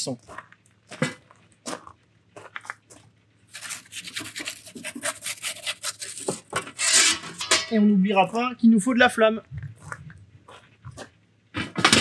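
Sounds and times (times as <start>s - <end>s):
metal scraping oven floor: 3.6s - 7.9s.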